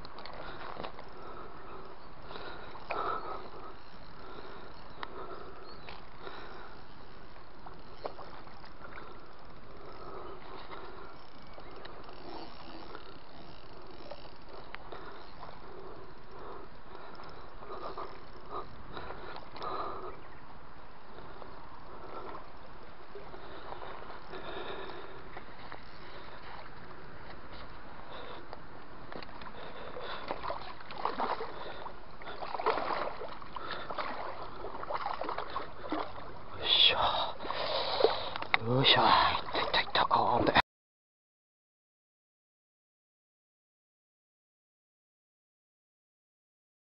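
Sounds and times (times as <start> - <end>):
steady outdoor noise: 0.0 - 40.6
fish splashing in water: 30.0 - 36.4.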